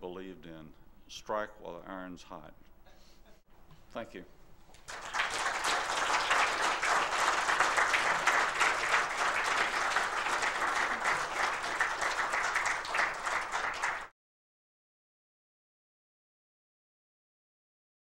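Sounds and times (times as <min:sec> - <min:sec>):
audience applauding: 0:04.8 - 0:14.1.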